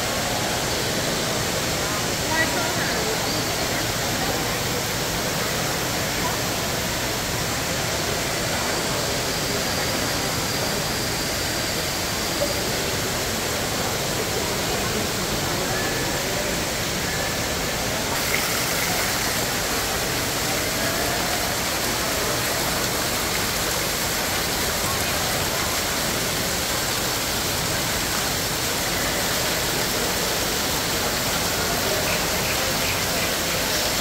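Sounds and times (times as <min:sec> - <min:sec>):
faint voices: 0:00.0 - 0:34.0
fountain water splashing: 0:00.0 - 0:34.0.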